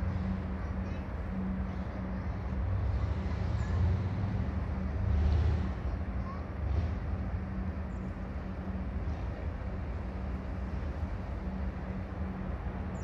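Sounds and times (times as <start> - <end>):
ferry engines rumbling: 0.0 - 13.0.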